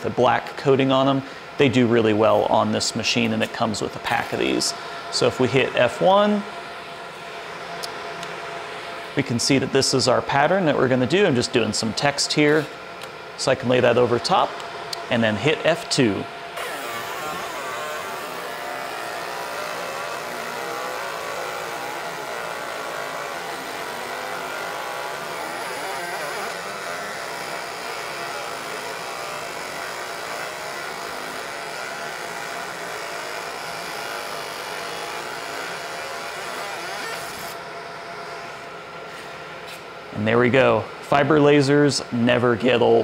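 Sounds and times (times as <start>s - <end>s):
laser engraver buzzing and hissing: 14.0s - 39.8s.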